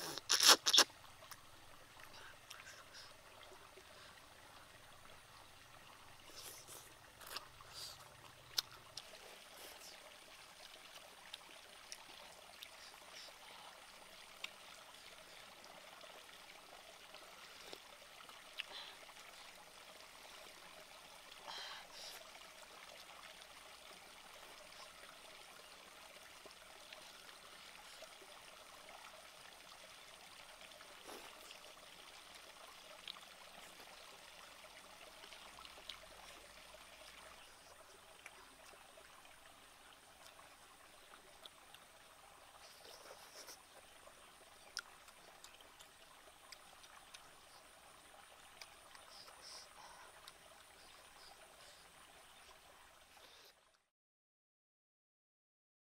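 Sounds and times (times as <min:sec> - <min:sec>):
slurp from soup bowl: 0:00.0 - 0:00.9
small stream running: 0:00.0 - 0:53.9.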